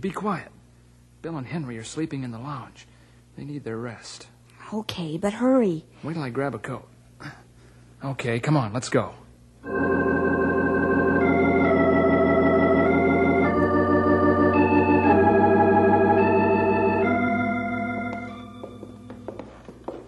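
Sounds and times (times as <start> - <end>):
organ playing held chords: 9.6 - 19.7.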